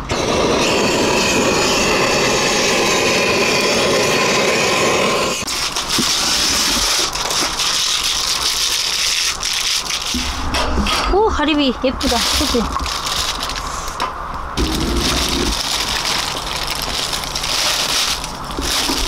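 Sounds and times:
butane torch flame rushing: 0:00.0 - 0:07.4, 0:14.6 - 0:19.0
charcoal fire crackling: 0:00.0 - 0:19.0.

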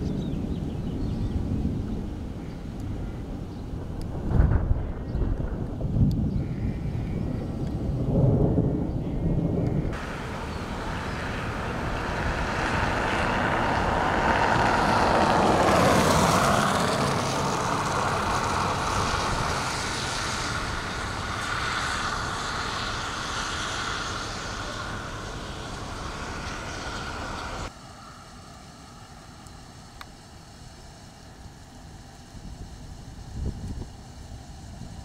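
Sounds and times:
tyres hissing on wet road: 0:10.0 - 0:35.0.

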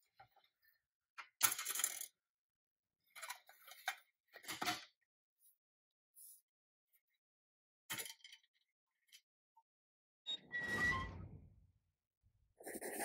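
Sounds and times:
metal toy clattering on metal table: 0:01.4 - 0:02.1, 0:07.9 - 0:08.4.

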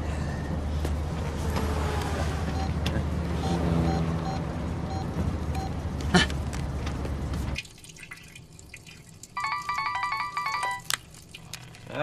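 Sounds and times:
faint water drips: 0:07.6 - 0:09.8, 0:10.8 - 0:12.0.

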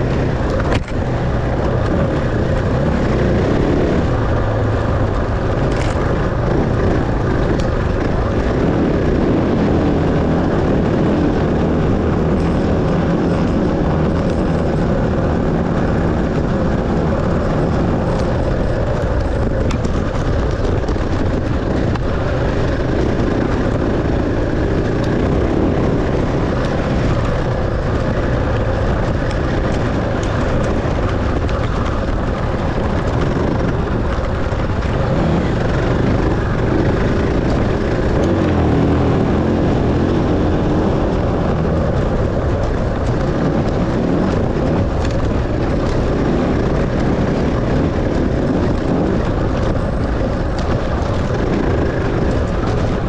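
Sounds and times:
dense rush of noise: 0:00.0 - 0:53.0
dirt bike engine revving: 0:21.6 - 0:42.6.

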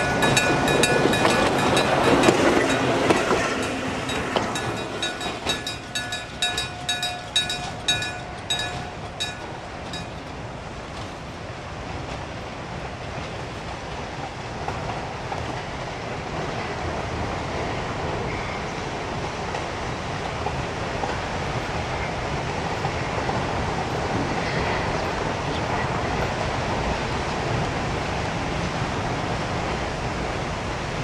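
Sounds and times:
railcar rumbling and rattling: 0:00.0 - 0:31.0.

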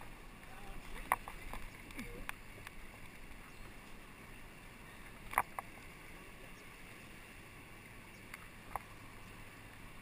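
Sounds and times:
fast river water rushing: 0:00.0 - 0:10.0.

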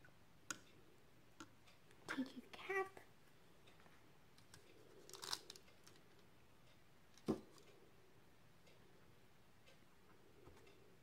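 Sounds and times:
aluminium foil crinkling: 0:05.1 - 0:06.0.

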